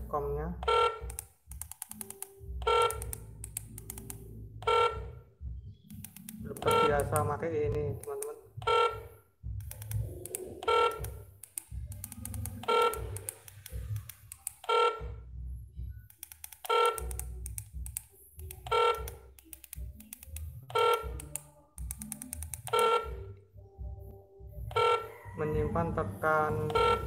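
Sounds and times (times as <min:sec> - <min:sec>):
short electronic beeps: 0:06.6 - 0:07.3.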